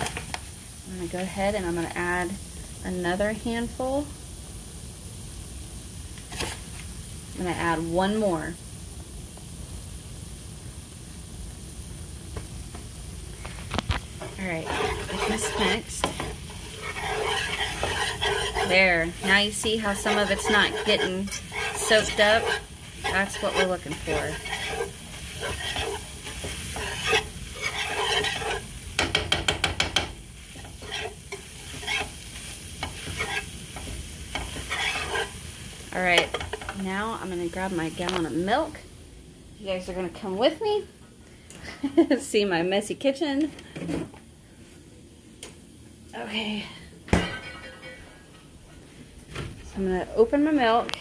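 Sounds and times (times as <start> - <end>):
sausage sizzling in a skillet: 0.0 - 41.0
whisk stirring in a frying pan: 13.4 - 36.9
whisk rattling against pan: 14.2 - 32.1.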